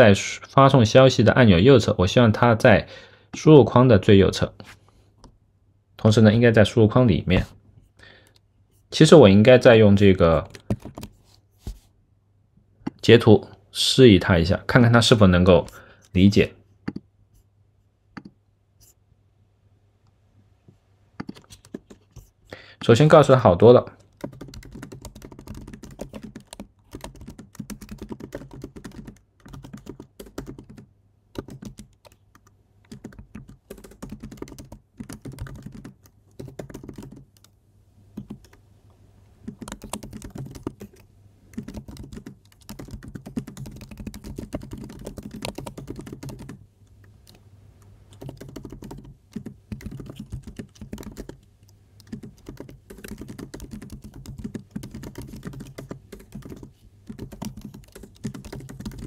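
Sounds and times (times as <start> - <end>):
computer keyboard typing: 10.3 - 11.2, 21.2 - 22.2, 24.0 - 37.5, 38.2 - 38.6, 39.4 - 46.6, 48.1 - 59.0.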